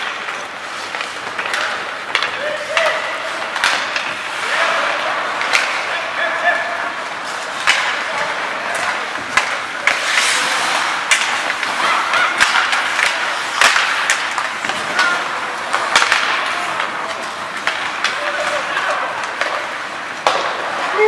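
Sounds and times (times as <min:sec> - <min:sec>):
hockey sticks and puck clacking: 0:00.0 - 0:21.0
skate blades scraping ice: 0:00.0 - 0:21.0.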